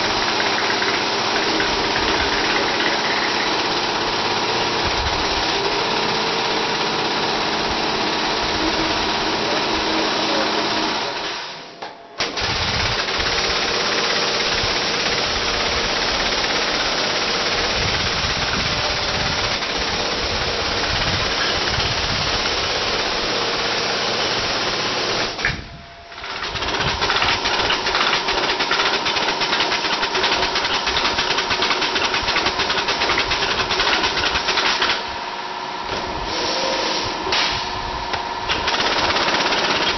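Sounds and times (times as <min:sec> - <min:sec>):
tufting gun mechanical chatter: 0:00.0 - 0:05.2, 0:26.2 - 0:34.9, 0:38.5 - 0:39.9.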